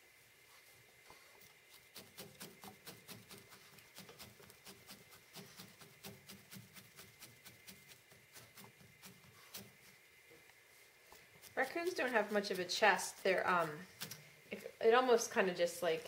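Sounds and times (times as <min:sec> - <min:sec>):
felting needle stabbing wool: 0:01.8 - 0:09.9, 0:11.4 - 0:14.2.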